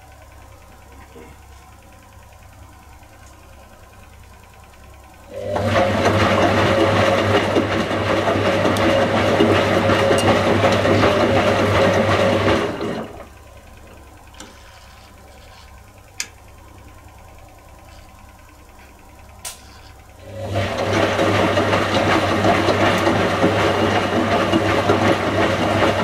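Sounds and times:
washing machine drum turning: 0:05.4 - 0:13.4, 0:20.2 - 0:26.0.

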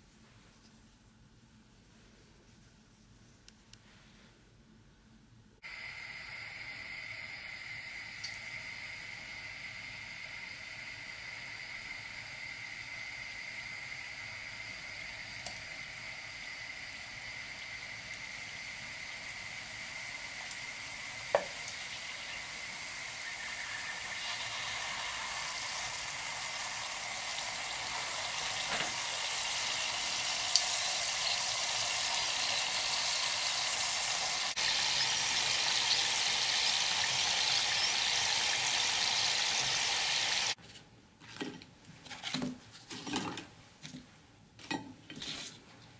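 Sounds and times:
dough deep-frying in oil: 0:05.6 - 0:40.6.

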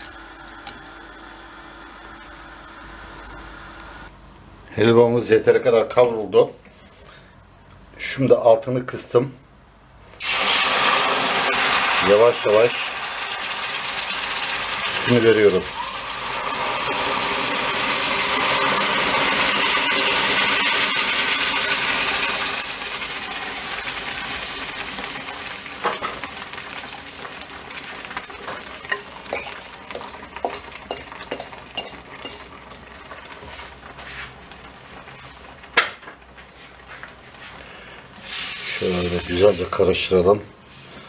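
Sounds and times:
milk sizzling in a hot pan: 0:10.2 - 0:40.1
wooden spatula scraping a pan: 0:33.4 - 0:34.4, 0:38.3 - 0:39.9.

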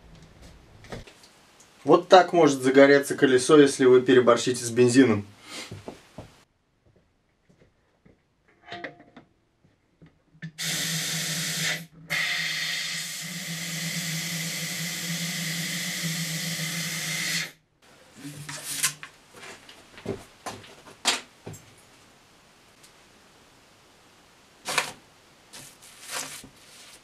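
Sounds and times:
compressed air hissing: 0:05.4 - 0:05.8, 0:10.5 - 0:17.6.

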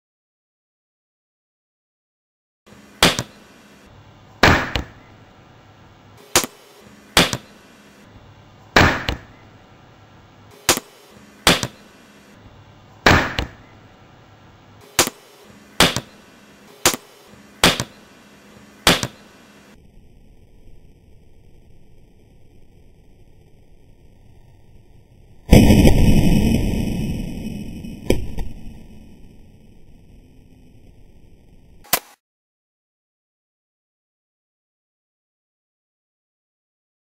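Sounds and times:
hand slapping wrapped ham: 0:15.8 - 0:16.1, 0:17.6 - 0:17.9, 0:18.9 - 0:19.2.

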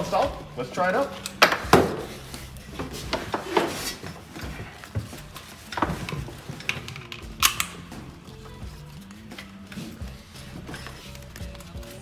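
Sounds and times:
clothing and seat rustling: 0:01.9 - 0:12.0
harness buckles clicking: 0:04.4 - 0:12.0.

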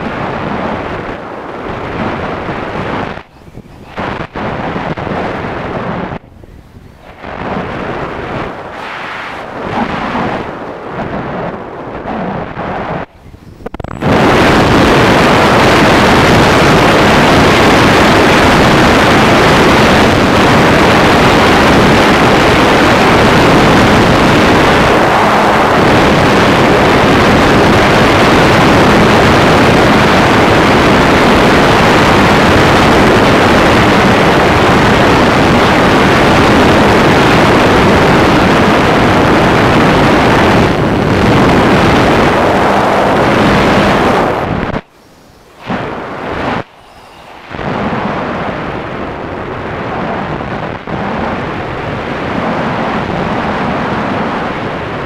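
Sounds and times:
wind buffeting microphone: 0:00.0 - 0:55.0
electric motor and propeller: 0:38.3 - 0:50.0.

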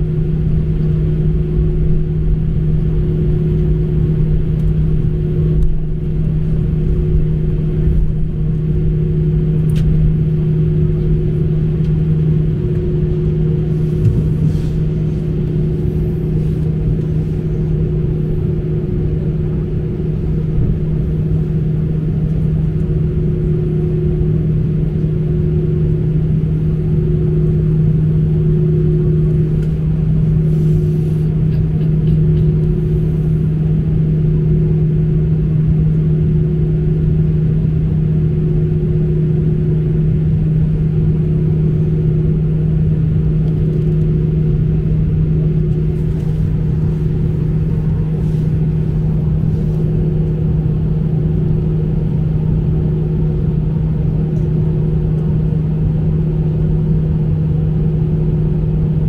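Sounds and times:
airliner cabin engine drone: 0:00.0 - 0:59.0.

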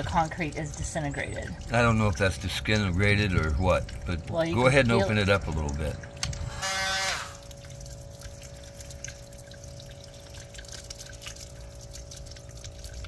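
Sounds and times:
water dripping and trickling: 0:00.0 - 0:13.0
power tool running: 0:06.4 - 0:07.4.

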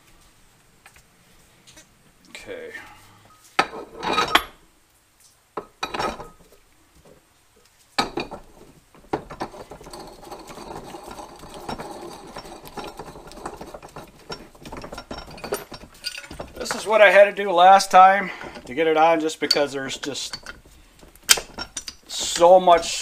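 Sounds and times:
metal rattling on metal: 0:08.0 - 0:23.0.

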